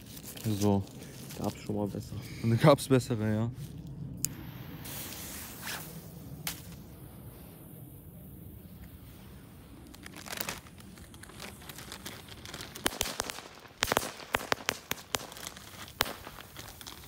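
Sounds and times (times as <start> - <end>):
firecrackers popping: 9.7 - 17.0
firecracker bang: 12.8 - 17.0.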